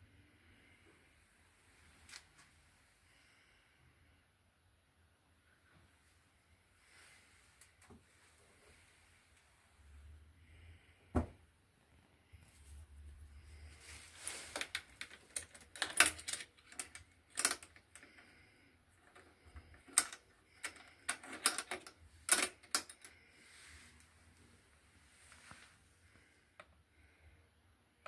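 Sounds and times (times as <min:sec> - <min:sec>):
metal latches clicking: 0:14.6 - 0:18.0.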